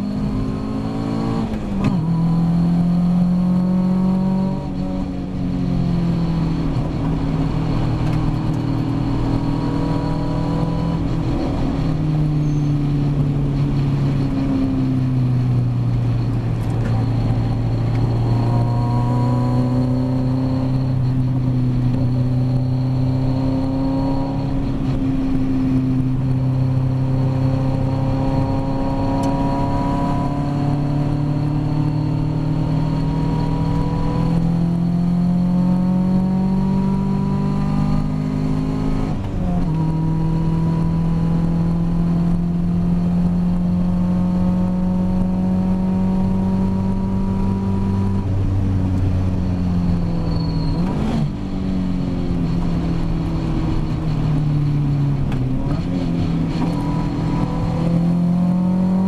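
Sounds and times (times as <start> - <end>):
race car engine shifting gears: 6.6 - 13.9, 52.4 - 59.0.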